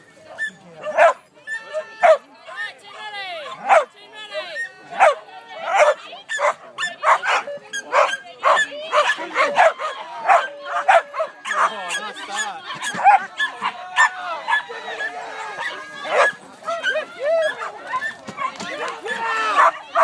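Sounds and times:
dogs barking excitedly: 0.4 - 2.3, 3.4 - 4.0, 4.6 - 20.0.

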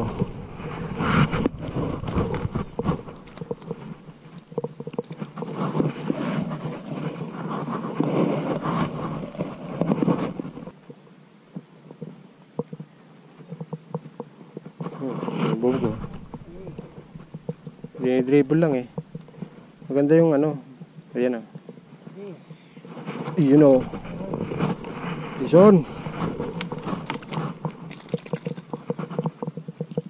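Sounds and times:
low rumble: 0.0 - 4.2, 15.7 - 19.4, 23.7 - 28.0
rustling among plant stems: 0.0 - 10.7, 14.8 - 20.4, 22.1 - 29.5
water splashing: 0.0 - 10.7, 15.6 - 19.8, 23.4 - 28.9.

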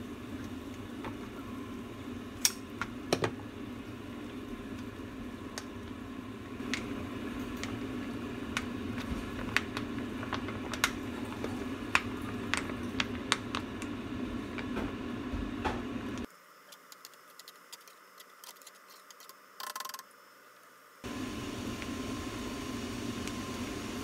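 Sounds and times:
sauce sizzling in frying pan: 21.1 - 24.0.

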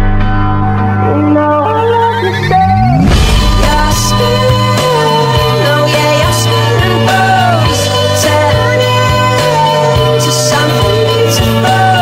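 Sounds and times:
sustained tones: 0.0 - 9.4
gliding melody line: 1.0 - 10.6
held low bass note: 2.5 - 5.0.

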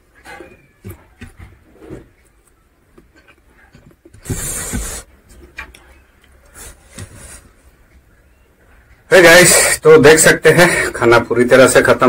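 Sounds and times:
chewing: 2.4 - 4.1
rubbing scrape: 4.2 - 5.1.

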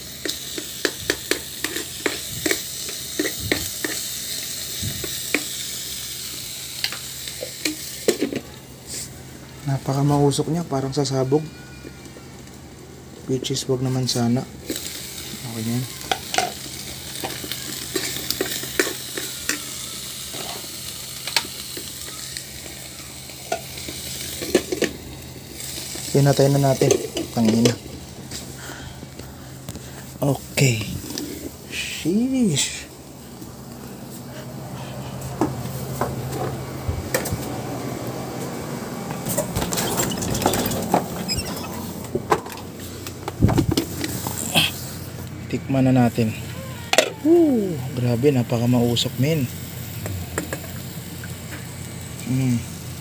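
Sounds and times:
food sizzling and popping in oil: 0.0 - 8.8, 14.6 - 30.0, 49.5 - 53.0.

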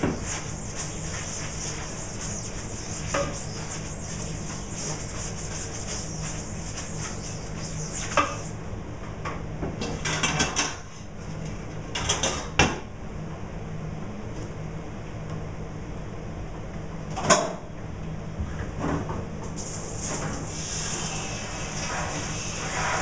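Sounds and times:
brush scrubbing mesh: 0.0 - 8.5
steady low hum: 0.0 - 8.8.

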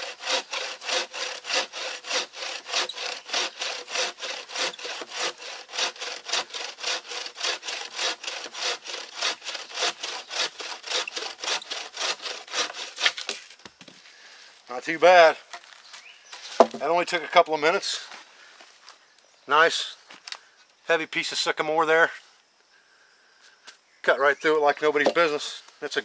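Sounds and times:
bow saw cutting log: 0.0 - 13.5.

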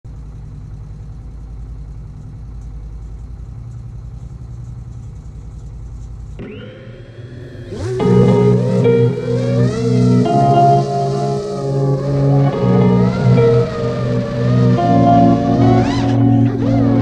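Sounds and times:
vehicle engine idling: 0.1 - 17.0
thin rising tone: 6.4 - 17.0
music: 7.8 - 17.0.

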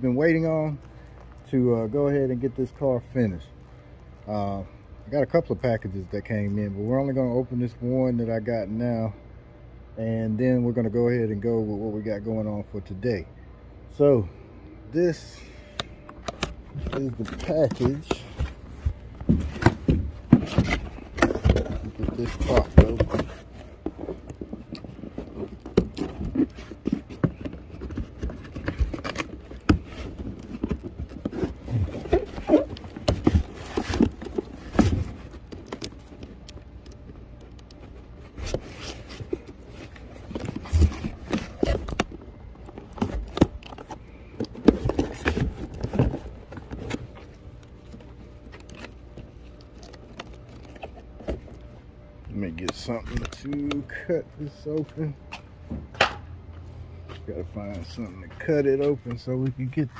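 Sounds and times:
hands handling cardboard box: 15.1 - 51.7
plastic wrapping rustling: 16.1 - 55.0.

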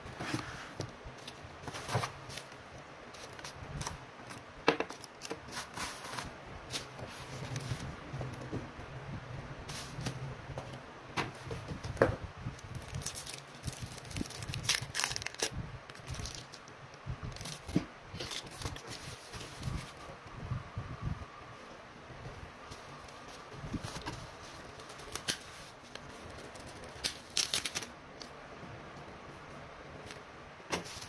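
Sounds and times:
paper packing rustling: 0.0 - 7.9, 12.6 - 20.0, 22.7 - 27.9, 30.1 - 31.0
plastic wrap crinkling: 12.6 - 20.0, 23.3 - 28.3.

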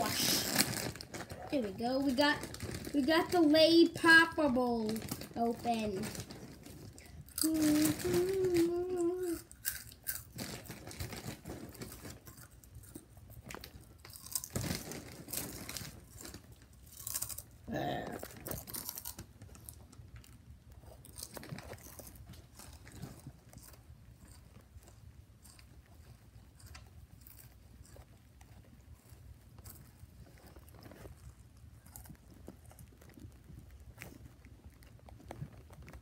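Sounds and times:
child's vocal sound: 0.0 - 0.6, 7.4 - 9.5
chips crunching: 0.0 - 36.0
snack bag crinkling: 0.0 - 36.0.

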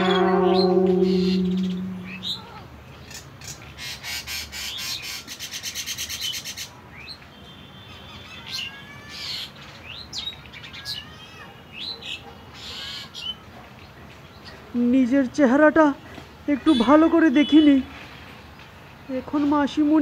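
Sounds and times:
sustained music tone: 0.0 - 2.5.

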